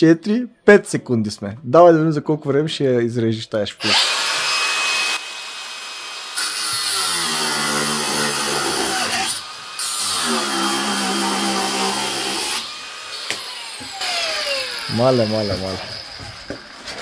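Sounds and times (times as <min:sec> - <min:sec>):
angle grinder cutting steel rod: 0:03.8 - 0:16.3
grinder disc winding down: 0:11.3 - 0:16.3.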